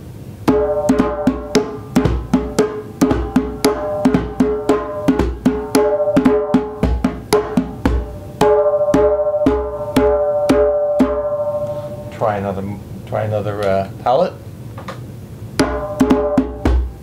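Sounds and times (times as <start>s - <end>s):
djembe drum played by hand: 0.4s - 11.5s, 15.6s - 17.0s.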